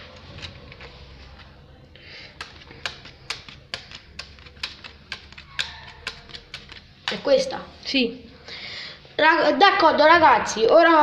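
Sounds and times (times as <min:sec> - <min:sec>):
cards slapping on stone: 0:02.2 - 0:07.5.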